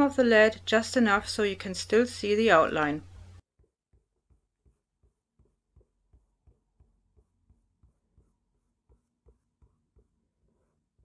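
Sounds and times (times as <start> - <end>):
eraser dabbing on paper: 3.9 - 11.0.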